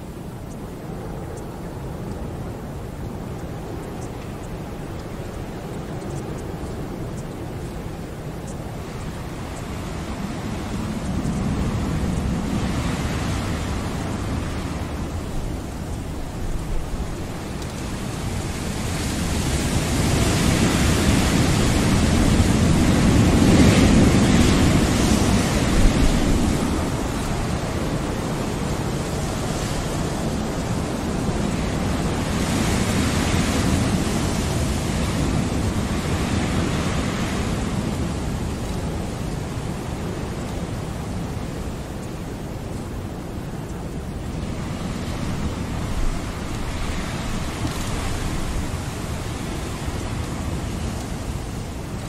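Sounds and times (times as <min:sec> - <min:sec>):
ocean surf: 0:00.0 - 0:52.0.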